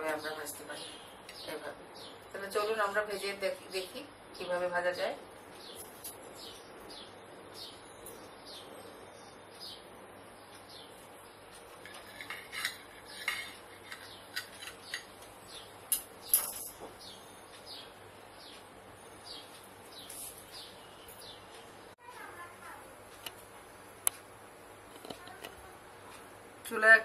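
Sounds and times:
bird chirping: 0:05.5 - 0:12.2, 0:12.9 - 0:22.5
knife scraping on ceramic plate: 0:11.9 - 0:15.1.

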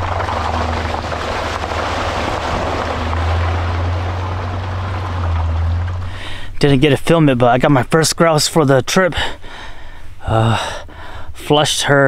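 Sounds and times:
truck engine drone: 0:00.0 - 0:08.5
tyre and mud noise: 0:00.0 - 0:08.7.

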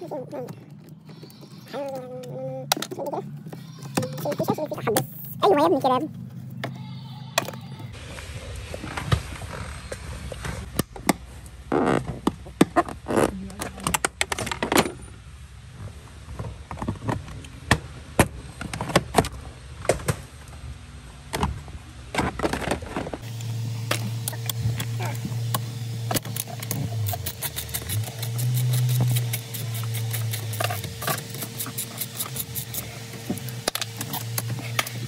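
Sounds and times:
steady low hum: 0:17.4 - 0:35.0
tools and trim parts clattering: 0:22.3 - 0:35.0.

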